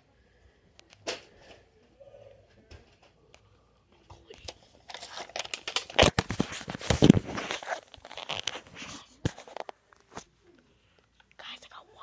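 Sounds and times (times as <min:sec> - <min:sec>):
close rustling and crinkling: 0:04.5 - 0:10.4.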